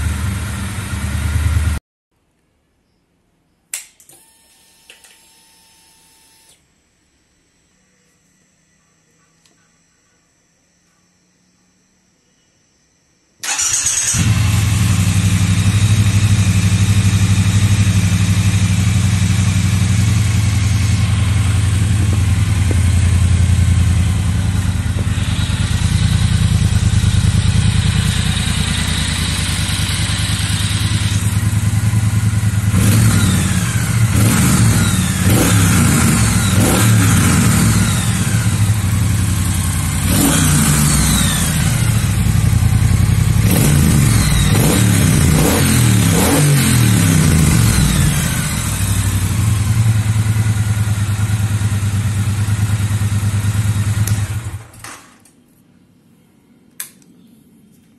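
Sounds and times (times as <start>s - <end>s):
motorcycle engine idling and revving: 0.0s - 1.8s, 13.4s - 55.1s.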